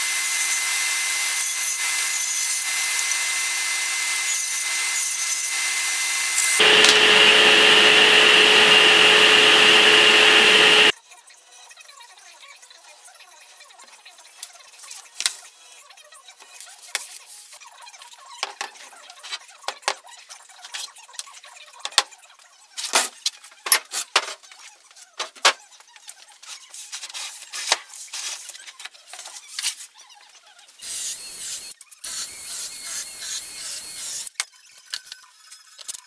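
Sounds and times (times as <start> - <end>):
cordless drill running: 4.8 - 10.9.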